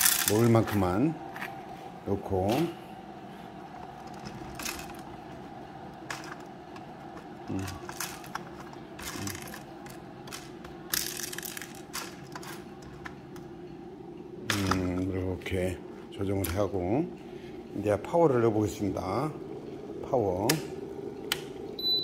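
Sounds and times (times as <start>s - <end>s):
steady background hum: 0.0s - 22.0s
plastic parts clicking: 7.5s - 13.1s.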